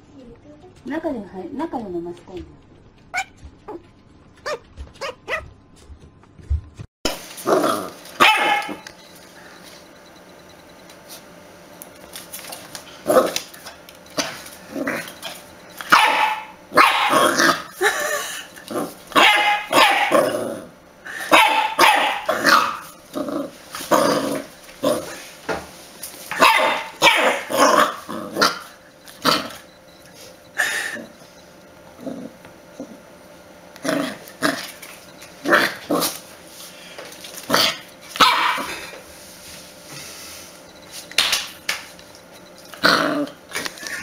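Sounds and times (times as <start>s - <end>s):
puppy barking: 3.1s - 3.8s, 4.4s - 5.5s, 8.2s - 8.9s, 15.8s - 17.6s, 19.2s - 20.3s, 21.3s - 23.0s, 26.3s - 29.5s, 37.5s - 38.8s.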